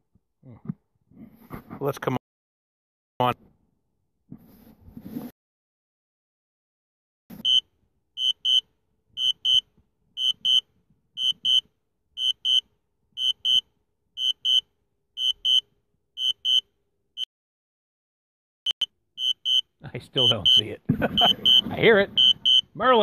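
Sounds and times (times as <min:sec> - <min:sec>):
short high warning beeps: 0:07.4 - 0:07.6, 0:08.2 - 0:08.6, 0:09.2 - 0:09.6, 0:10.2 - 0:10.6, 0:11.2 - 0:11.6, 0:12.2 - 0:12.6, 0:13.2 - 0:13.6, 0:14.2 - 0:14.6, 0:15.2 - 0:15.6, 0:16.2 - 0:16.6, 0:18.7 - 0:22.7.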